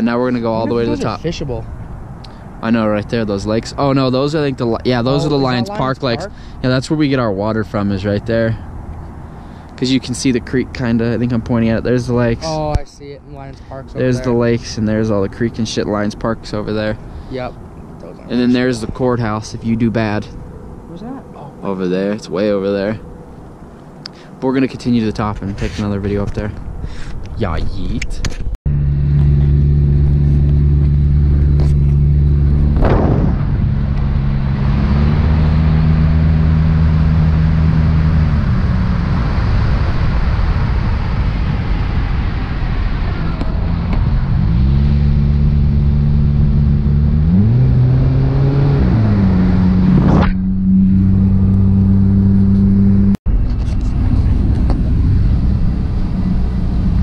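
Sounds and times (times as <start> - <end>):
wind and road noise: 0.0 - 57.0
car engine from inside cabin: 43.4 - 57.0.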